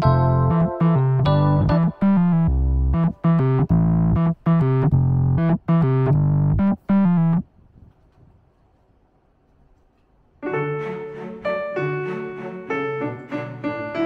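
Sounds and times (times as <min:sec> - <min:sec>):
piano chords: 0:00.0 - 0:07.4, 0:10.4 - 0:14.0.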